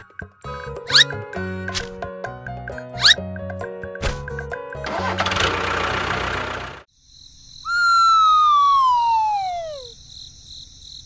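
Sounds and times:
whistle sliding down in pitch: 7.7 - 9.9.

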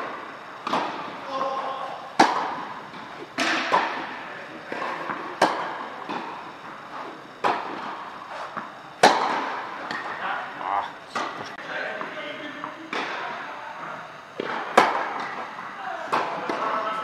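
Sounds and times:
tennis ball struck by racquet: 0.6 - 1.1, 2.2 - 6.4, 7.4 - 10.1, 11.1 - 11.4
distant tennis hits: 0.6 - 1.2, 2.2 - 6.8, 7.4 - 10.2.

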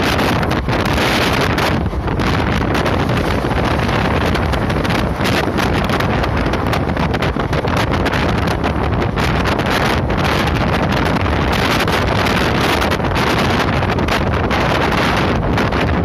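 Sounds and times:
train running noise: 0.0 - 16.0
wind buffeting microphone: 0.0 - 16.0.

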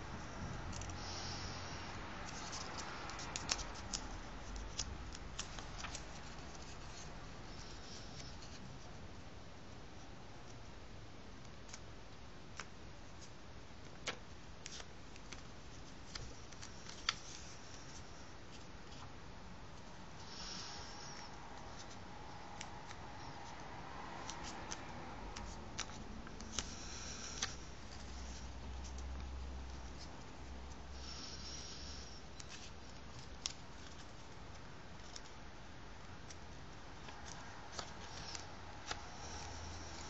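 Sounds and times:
soft paper rustling: 0.1 - 10.7, 12.5 - 20.0, 21.0 - 30.9, 32.3 - 40.0
paper crinkling as folded: 2.2 - 8.7.

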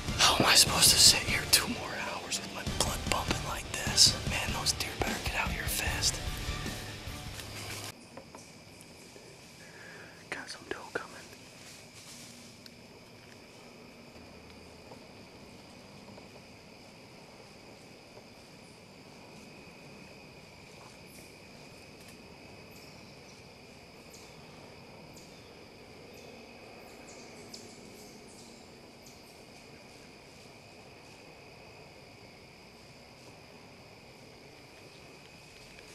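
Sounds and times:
crickets trilling: 0.0 - 35.9
faint ticks and rustles: 7.3 - 23.5, 32.7 - 35.9.

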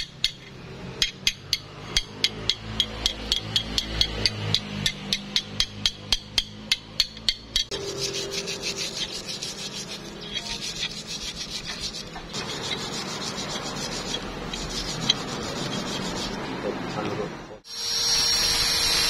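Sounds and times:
wire brush scrubbing metal: 7.6 - 17.1.

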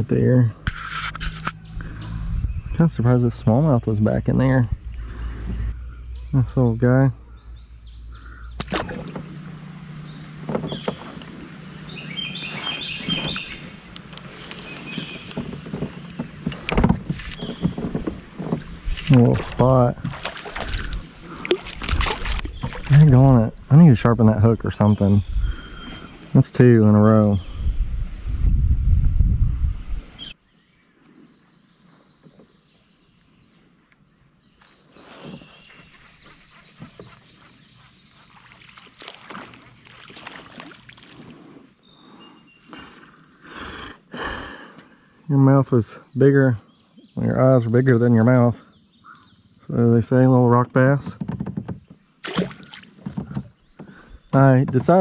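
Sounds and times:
steady low hum: 0.0 - 25.7
wind rumble on microphone: 0.0 - 26.3, 27.0 - 30.4
birds chirping faintly: 0.0 - 27.9, 29.8 - 55.0
bird singing short notes: 1.2 - 13.9
light knocks and clicks: 51.0 - 52.0.

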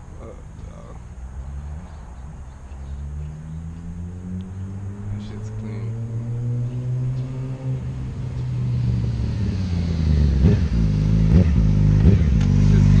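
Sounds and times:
motorcycle engine revving: 2.9 - 13.0.

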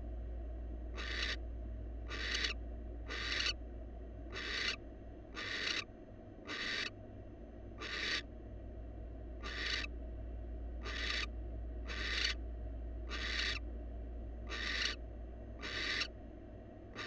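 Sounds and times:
owl hissing calls: 1.0 - 1.4, 2.1 - 3.6, 4.3 - 6.9, 7.8 - 8.2, 9.4 - 9.9, 10.8 - 11.3, 11.9 - 12.4, 13.1 - 13.6, 14.5 - 15.0, 15.6 - 16.1.

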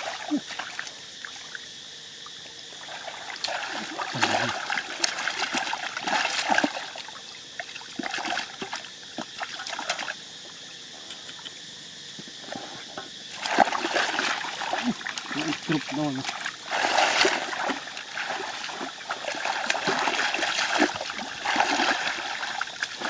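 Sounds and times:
hands splashing in muddy water: 2.9 - 7.0, 13.3 - 23.0.

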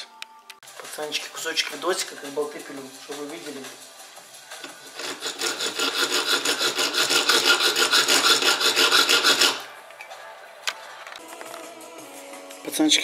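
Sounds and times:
hacksaw cutting steel: 4.6 - 9.7.

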